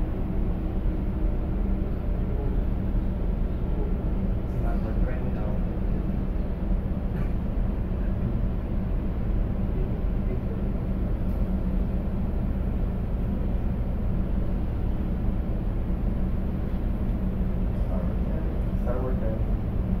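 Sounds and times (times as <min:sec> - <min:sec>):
ship machinery drone: 0:00.0 - 0:20.0.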